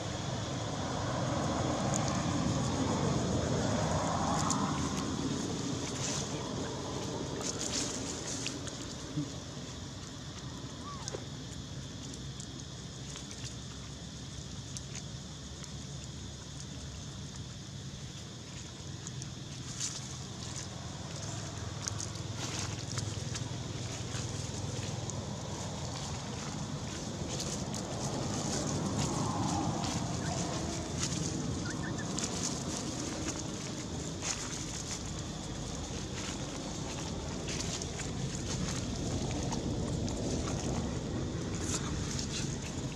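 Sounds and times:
steady low rumble: 16.9s - 42.9s
dry leaves crackling: 21.0s - 42.9s
monkey chirps: 31.6s - 32.1s.

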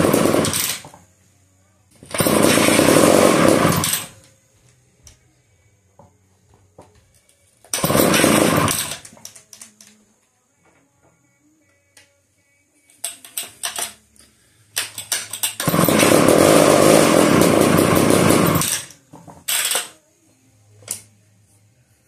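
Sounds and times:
chainsaw engine running: 0.0s - 0.8s, 2.0s - 4.2s, 7.8s - 9.0s, 15.6s - 18.9s
recoil starter yanks: 2.0s - 4.1s, 7.7s - 9.8s, 14.8s - 19.9s.

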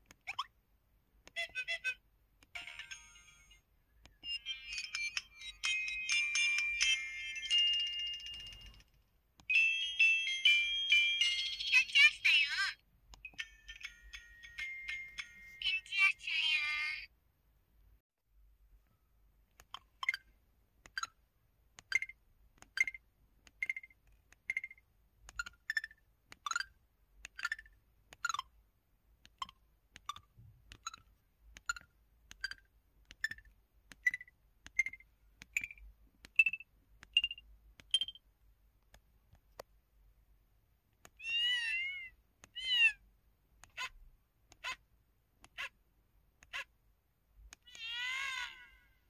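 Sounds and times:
phone keypad beeps: 34.0s - 38.2s.

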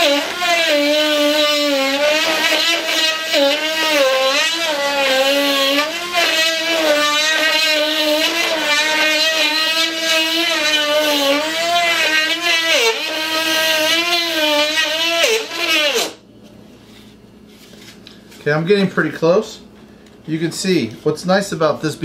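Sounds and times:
rotary tool whine drilling wood: 0.0s - 16.2s.

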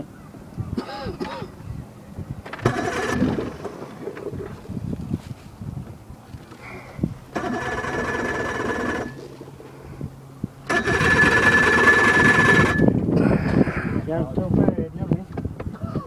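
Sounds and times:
electric starter cranking engine: 2.5s - 4.5s, 7.3s - 9.5s, 10.6s - 13.0s.

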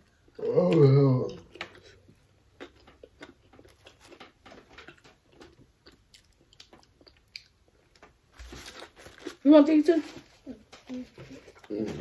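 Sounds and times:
chewing and wet mouth smacks: 0.7s - 7.6s.

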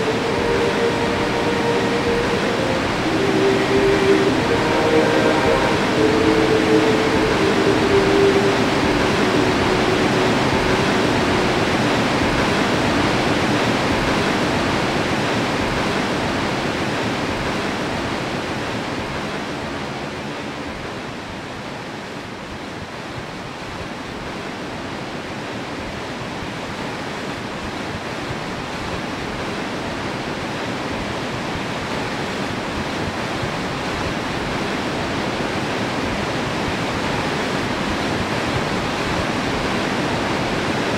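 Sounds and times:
low hum: 0.0s - 14.8s
waterfall rushing: 0.0s - 19.0s.

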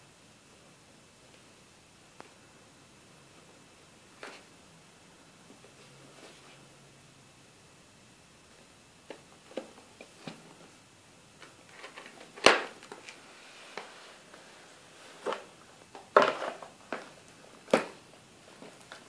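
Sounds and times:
cardboard rustling: 11.4s - 19.0s.

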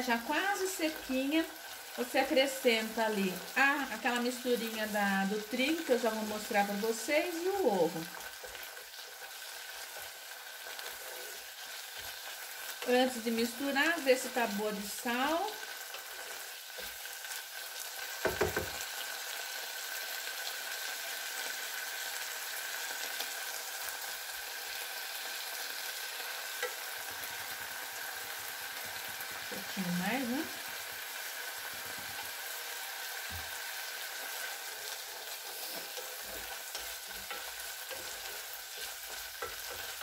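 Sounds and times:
ground beef sizzling: 0.0s - 40.0s
sharp knocks: 18.2s - 18.8s
wooden spoon scraping pan: 34.2s - 40.0s.

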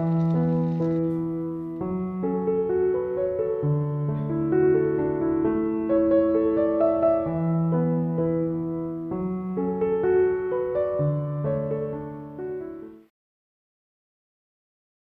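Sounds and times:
gentle solo piano music: 0.0s - 13.1s.

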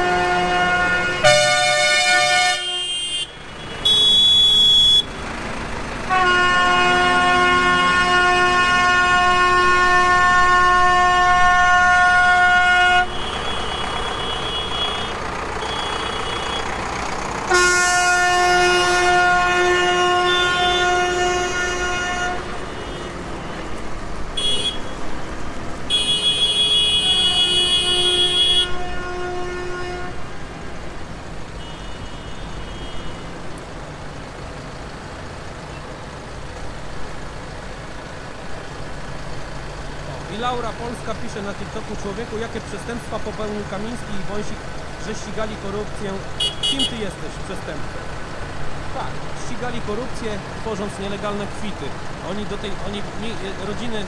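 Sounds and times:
tractor horn blasts: 0.0s - 5.2s, 6.1s - 16.7s, 17.5s - 23.7s, 24.4s - 25.0s, 25.9s - 30.3s, 31.6s - 33.4s, 46.4s - 47.2s
tractor engines rolling past: 0.0s - 54.0s.

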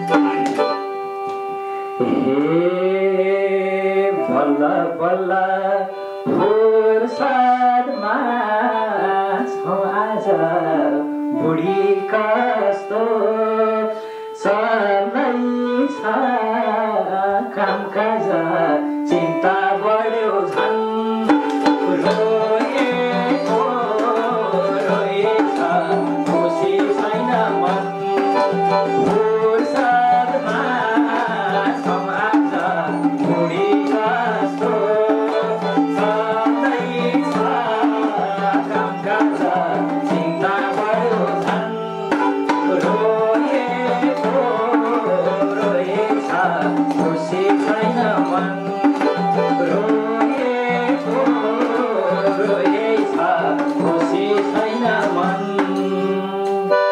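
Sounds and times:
hand drum beating: 0.0s - 0.8s, 19.7s - 56.9s
bowed string instrument: 0.0s - 56.9s
electronic keyboard melody: 0.0s - 56.9s.

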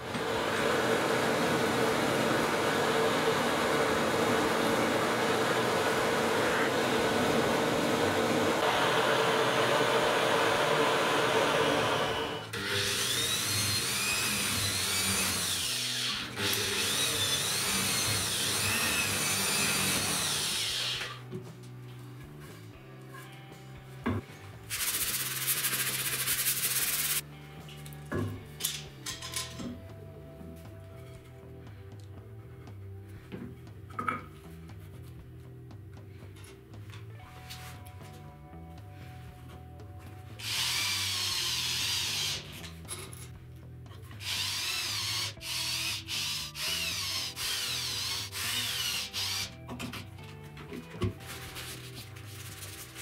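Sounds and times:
power drill driving screws: 11.6s - 21.2s, 40.4s - 42.7s, 44.2s - 49.6s
quiet background music: 12.5s - 53.0s
sanding sponge rubbing wood: 24.7s - 27.2s.

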